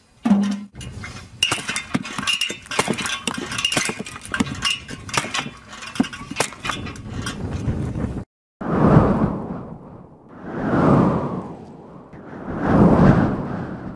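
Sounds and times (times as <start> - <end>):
split sticks clattering: 0.3 - 7.5
blade knocking and splitting wood: 0.7 - 7.4.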